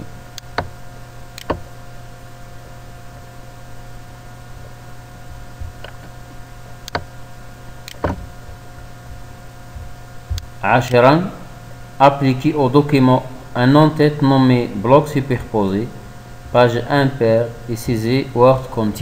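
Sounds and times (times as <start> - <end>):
electrical hum and hiss: 0.0 - 19.0
computer mouse clicks: 1.4 - 1.6, 6.8 - 7.1, 7.8 - 8.2.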